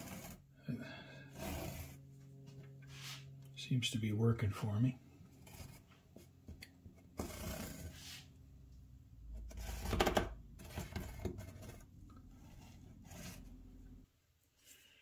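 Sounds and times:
hands rubbing and scraping: 0:02.9 - 0:03.3.

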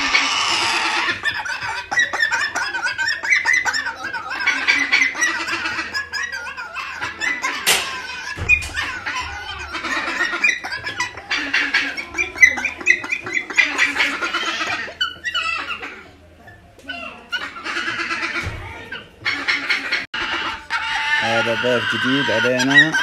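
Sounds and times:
cockatoo chick begging calls: 0:00.0 - 0:23.0
cockatoo chick screeching: 0:00.0 - 0:23.0.

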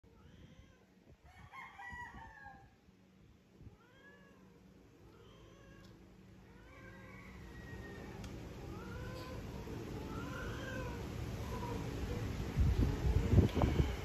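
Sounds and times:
cat yowling: 0:00.1 - 0:00.9, 0:08.6 - 0:12.2.

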